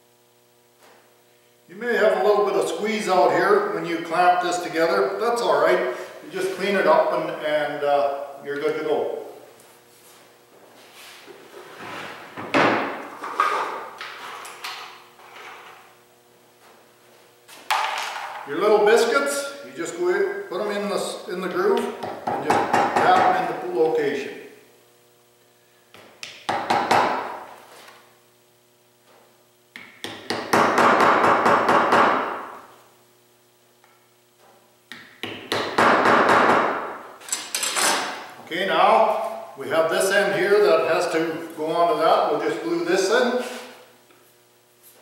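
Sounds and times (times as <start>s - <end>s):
sharp knock on workbench: 26.5s - 27.4s, 29.8s - 32.4s, 35.2s - 36.8s.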